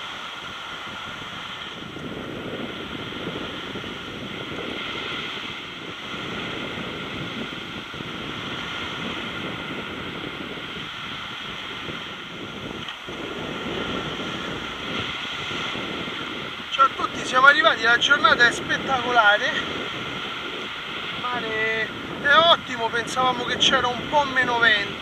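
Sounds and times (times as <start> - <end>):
sea waves breaking: 0.0 - 25.0
wind against microphone: 0.0 - 25.0.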